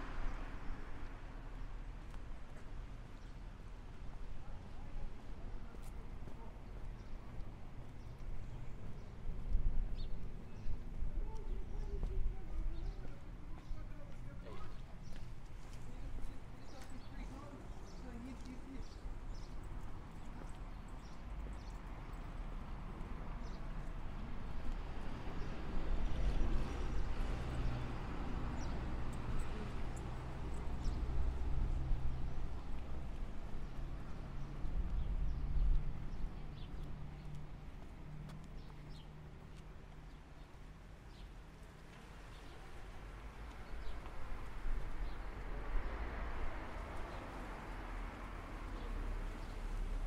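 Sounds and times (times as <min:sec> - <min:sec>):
footsteps on concrete: 0:10.7 - 0:18.8, 0:32.7 - 0:40.9.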